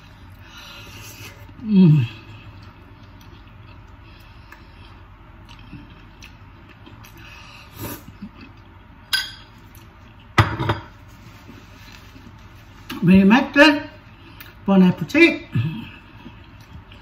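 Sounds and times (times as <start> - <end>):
faint chewing: 0.0 - 9.0, 15.8 - 17.0.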